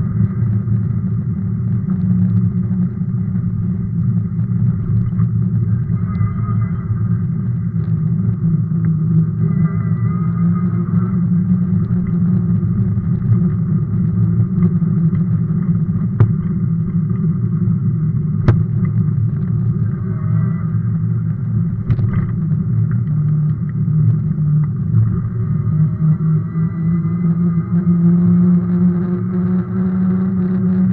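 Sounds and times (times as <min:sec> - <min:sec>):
bike rolling over rough asphalt: 0:11.4 - 0:25.3.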